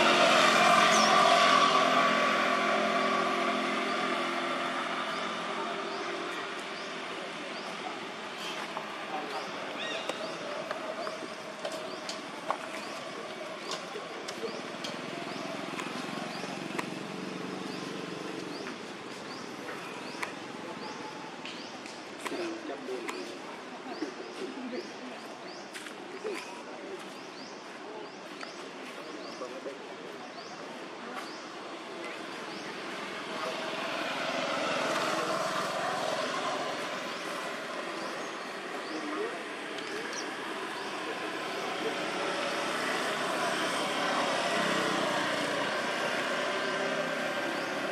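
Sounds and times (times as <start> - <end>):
distant engine passing: 0.0 - 21.3, 31.6 - 47.9.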